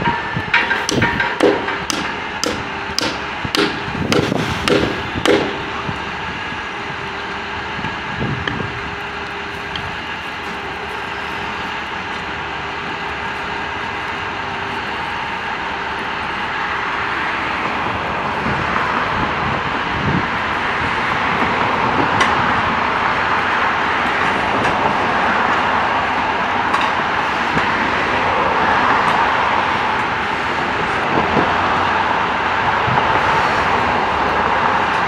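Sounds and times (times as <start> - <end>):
diesel truck engine running: 0.0 - 35.0
hammer blows on wooden pole: 0.5 - 5.7.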